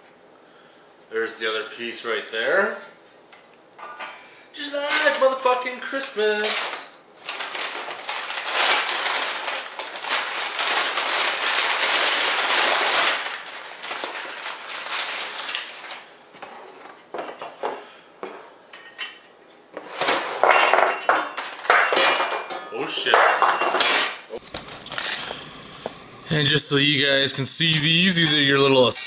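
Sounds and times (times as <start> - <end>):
packing paper crinkling: 6.6 - 16.2.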